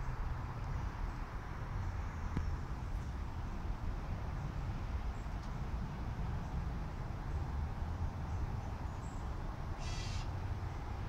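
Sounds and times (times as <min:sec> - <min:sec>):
low outdoor rumble: 0:00.0 - 0:11.0
raspy bird call: 0:09.8 - 0:10.4.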